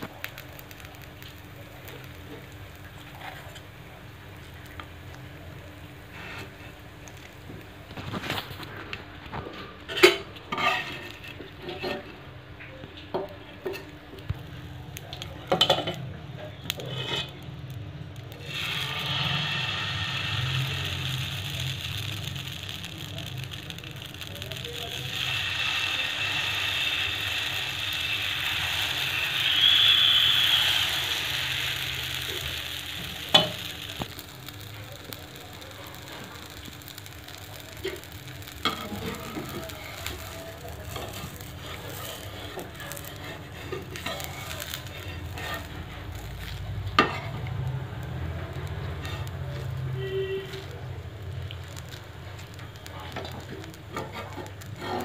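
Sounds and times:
batter sizzling on hot pan: 0.0 - 55.0
metal utensil scraping pan: 9.9 - 12.2, 16.7 - 17.4, 40.8 - 46.2, 47.0 - 47.5, 53.2 - 55.0.

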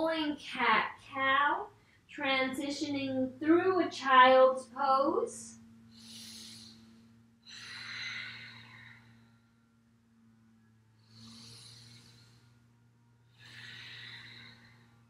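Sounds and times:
faint low hum: 0.0 - 15.0
woman breathing: 1.8 - 2.1, 5.6 - 15.0.

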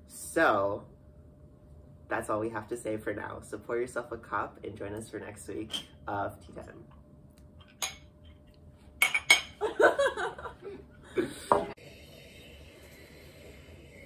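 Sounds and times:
mugs clinking together: 7.6 - 8.1, 9.0 - 9.6
people laughing: 9.6 - 11.6.

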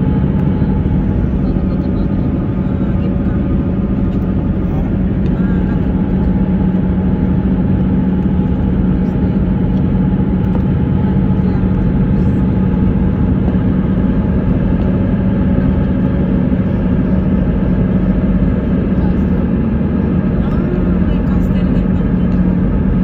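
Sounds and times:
car engine drone: 0.0 - 23.0.

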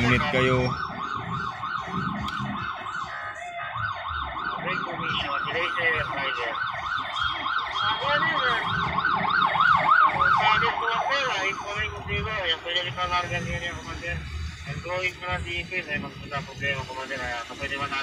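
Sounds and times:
electronic siren yelping: 0.0 - 14.8.

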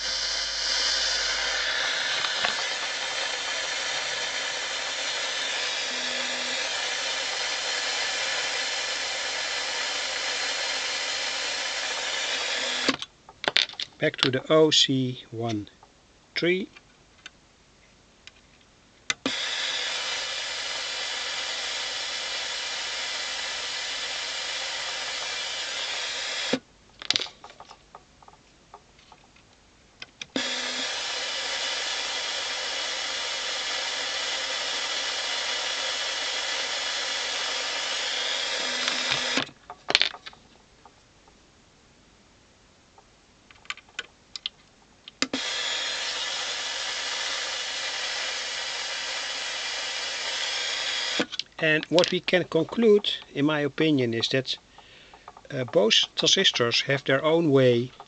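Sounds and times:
white noise hiss from loudspeaker: 0.0 - 4.5, 5.8 - 7.2, 12.6 - 19.2, 51.5 - 58.0.

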